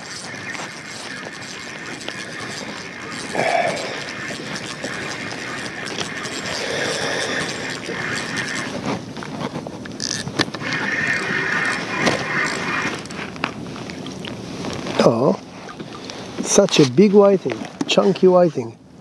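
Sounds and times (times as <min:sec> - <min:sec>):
fishing reel whirring: 0:00.0 - 0:15.1.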